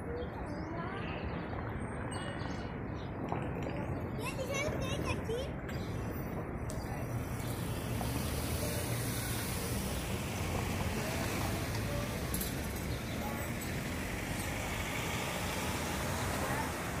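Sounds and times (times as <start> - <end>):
cars driving past: 6.7 - 17.0.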